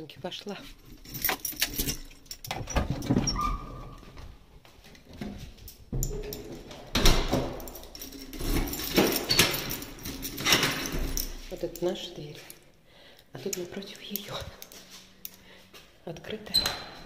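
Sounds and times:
handling noise: 0.6s - 12.8s
door squeak: 2.6s - 4.2s, 16.5s - 17.0s
door clicks and knocks: 5.9s - 11.3s
footsteps: 13.4s - 16.0s.

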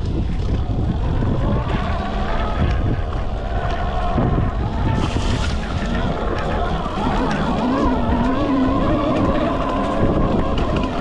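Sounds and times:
wind noise on microphone: 0.0s - 11.0s
electric motor whining: 0.4s - 11.0s.

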